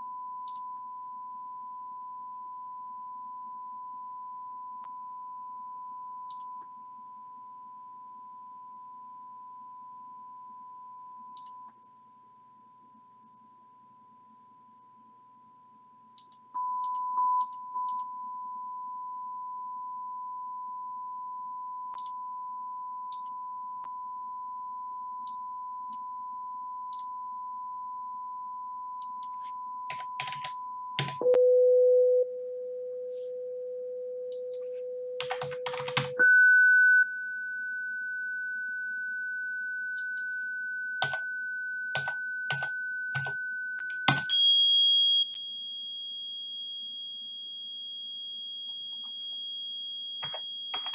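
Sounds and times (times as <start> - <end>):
sine test tone: 0.0 - 50.9
computer keyboard typing: 29.9 - 31.2, 35.2 - 36.2, 41.0 - 41.2, 41.9 - 44.4, 50.2 - 50.9.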